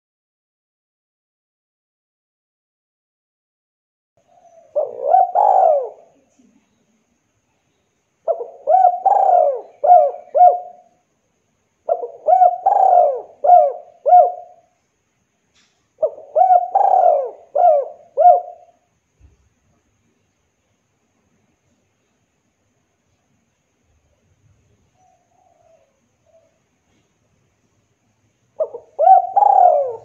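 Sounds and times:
dove cooing: 4.2 - 6.4, 8.2 - 10.9, 11.8 - 14.7, 16.0 - 18.8, 25.0 - 27.1, 28.6 - 30.0.

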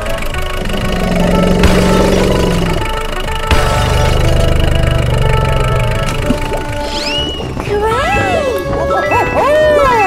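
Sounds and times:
cartoon truck engine running: 0.0 - 7.6
faint background music: 0.0 - 10.0.

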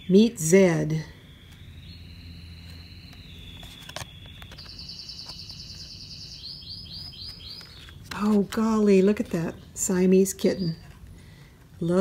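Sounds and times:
canaries trilling: 1.2 - 8.0.

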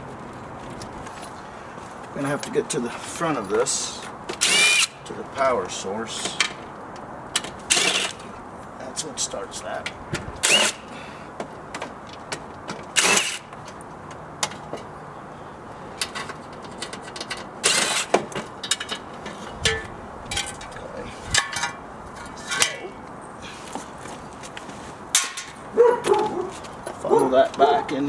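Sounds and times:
rustling scrapes: 23.5 - 25.1.

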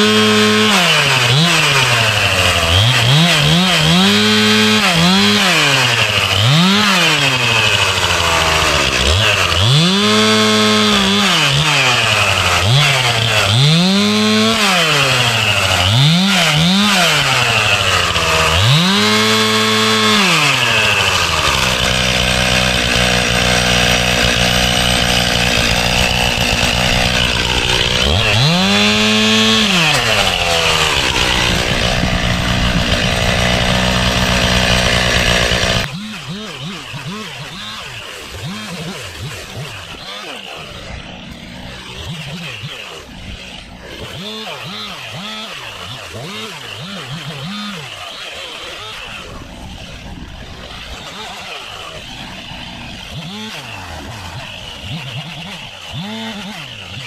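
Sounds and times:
chainsaw idling: 0.0 - 57.0
chainsaw revving: 0.0 - 57.0.

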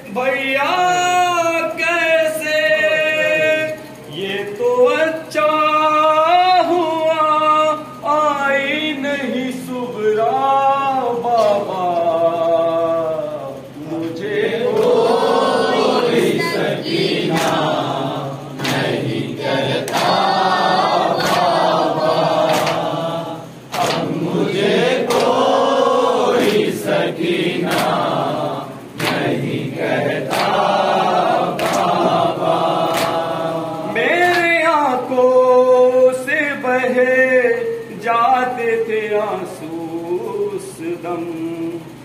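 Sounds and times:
men chanting a lament: 0.0 - 41.9
rhythmic chest slaps: 11.2 - 12.1, 13.9 - 34.7.

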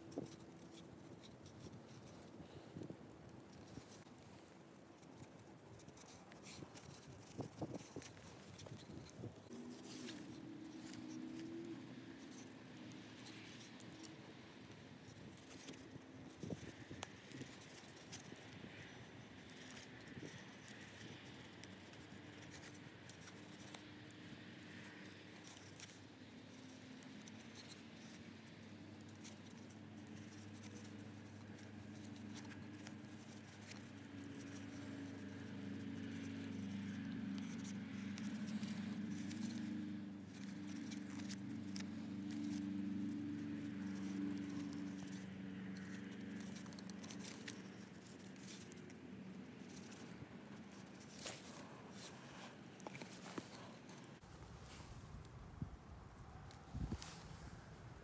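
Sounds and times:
cord rustling and clicking: 0.0 - 54.3.

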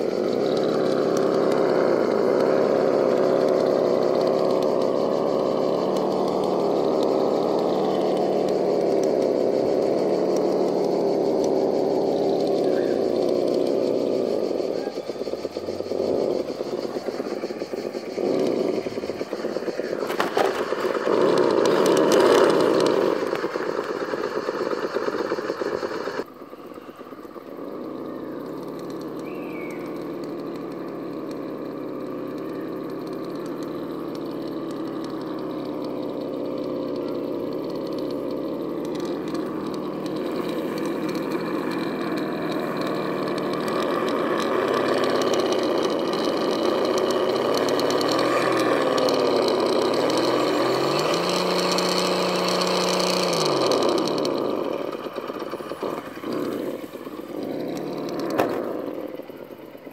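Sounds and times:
electric motor and gears whining: 0.0 - 59.9
rough running noise: 0.0 - 59.9.

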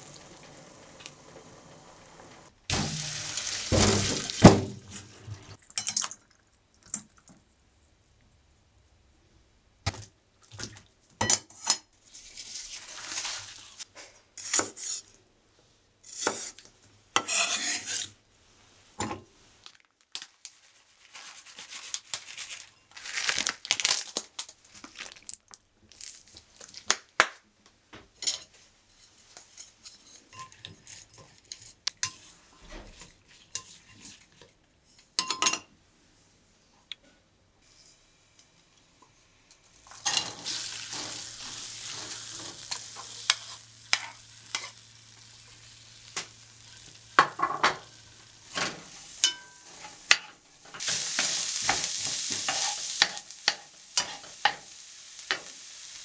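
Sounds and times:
dishes and utensils clinking: 35.2 - 35.7, 39.9 - 44.8, 48.5 - 54.6.

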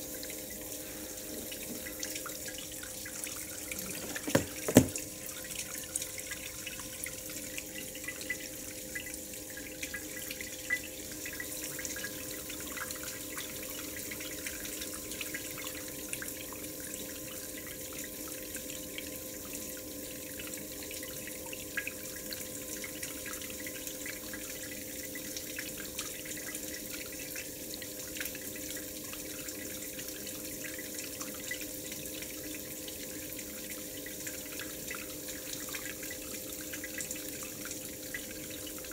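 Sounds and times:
water running and splashing: 0.0 - 8.3
water dripping: 0.1 - 15.8.

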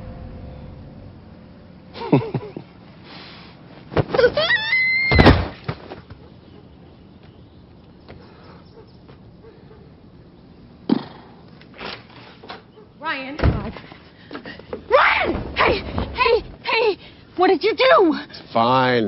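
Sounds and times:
body thumping on ground: 3.8 - 6.2
child crying out: 4.2 - 5.4.

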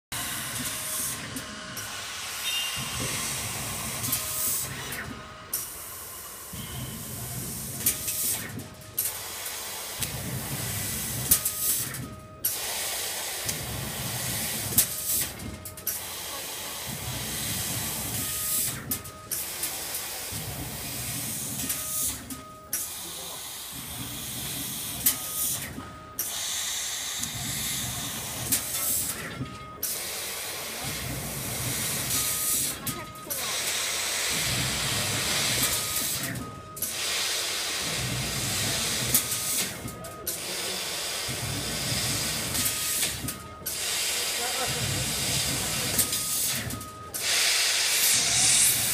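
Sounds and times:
hiss of laser cutter gas: 0.2 - 18.8, 22.8 - 29.2, 29.9 - 46.6, 47.2 - 48.9
short tone: 2.4 - 3.1, 6.5 - 7.2.

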